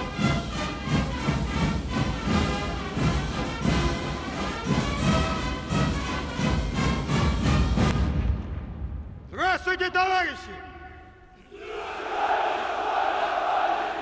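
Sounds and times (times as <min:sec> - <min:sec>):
military brass band march: 0:00.0 - 0:08.4.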